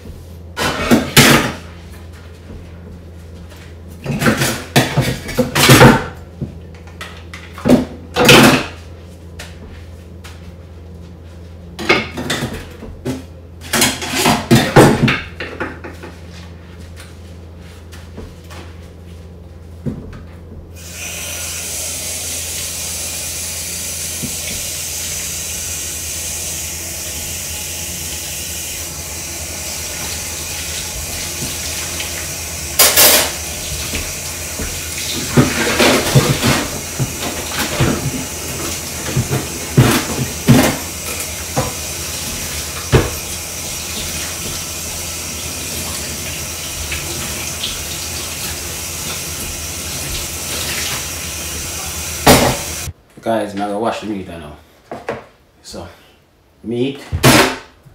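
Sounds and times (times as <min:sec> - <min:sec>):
tap water running into sink: 0:29.5 - 0:52.9.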